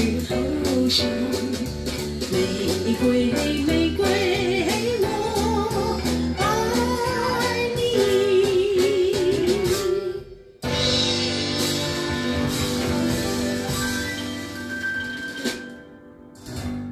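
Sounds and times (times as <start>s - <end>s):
woman singing: 0.0s - 10.5s
acoustic band with plucked strings: 10.6s - 16.9s.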